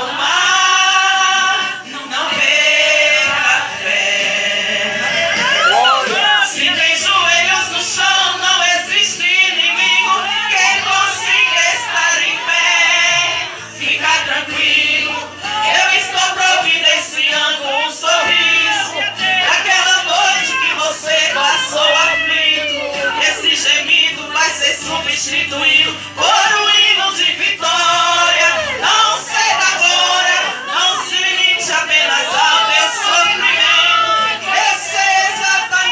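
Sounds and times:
lead singer through microphone: 0.0s - 35.9s
women singing a hymn: 0.0s - 35.9s
lead voice into microphone: 5.1s - 12.5s.

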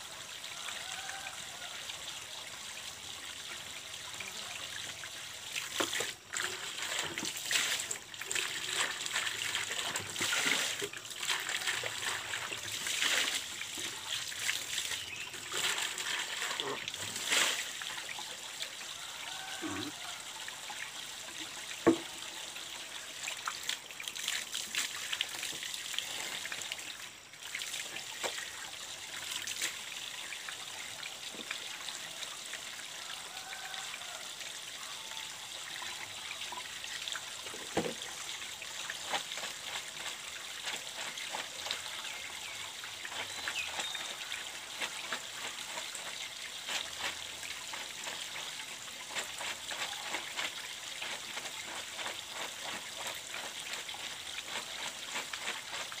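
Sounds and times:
water trickling from pipe: 0.0s - 56.0s
water splashing: 4.8s - 18.2s
plastic bucket knocking: 21.8s - 22.1s, 37.7s - 38.0s.

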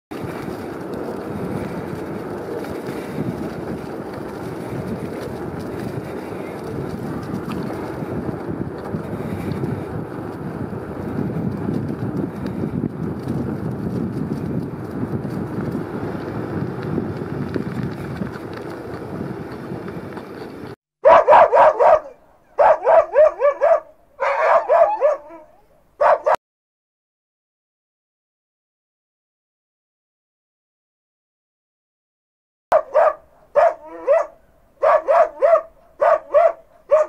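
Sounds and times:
wind on microphone: 0.1s - 26.2s
dog barking: 21.0s - 26.4s, 32.7s - 37.0s.

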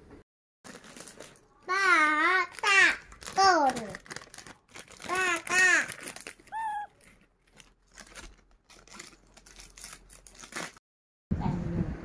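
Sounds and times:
baby monkey calling: 6.5s - 7.0s.

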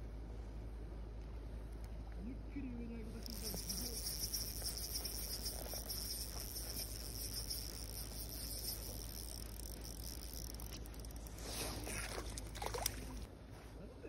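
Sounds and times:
fishing reel whirring: 3.2s - 13.3s.

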